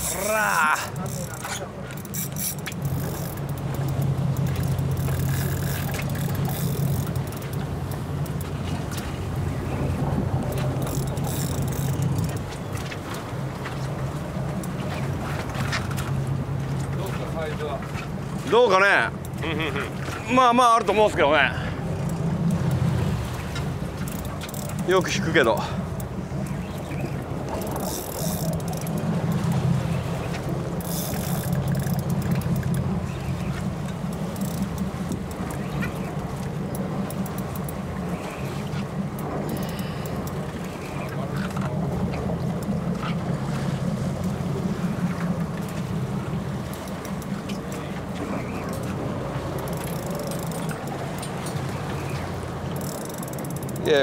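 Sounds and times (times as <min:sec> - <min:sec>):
fishing reel fast clicking: 0:00.0 - 0:07.6, 0:10.8 - 0:12.4, 0:24.0 - 0:24.9, 0:27.6 - 0:29.1, 0:30.8 - 0:32.8, 0:34.2 - 0:35.6, 0:39.4 - 0:40.4, 0:49.6 - 0:51.0, 0:52.7 - 0:53.9
boat engine humming: 0:00.0 - 0:54.0
wind: 0:00.0 - 0:54.0.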